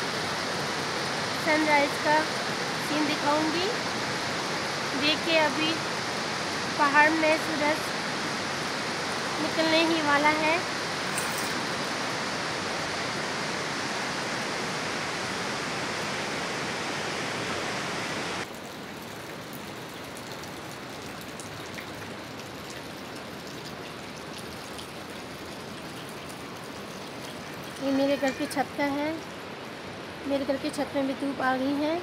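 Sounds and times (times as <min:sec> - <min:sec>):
river rushing: 0:00.0 - 0:18.5.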